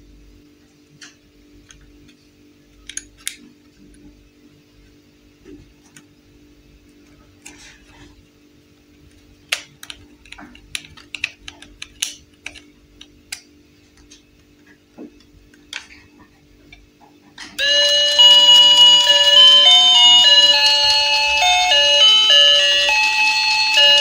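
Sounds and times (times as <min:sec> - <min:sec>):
plastic toys clicking: 0:02.8 - 0:03.4, 0:09.5 - 0:13.5.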